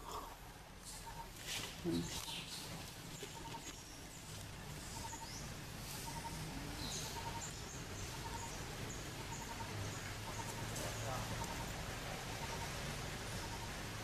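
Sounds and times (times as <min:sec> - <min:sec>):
faint pulsed bird call: 0:05.0 - 0:10.7.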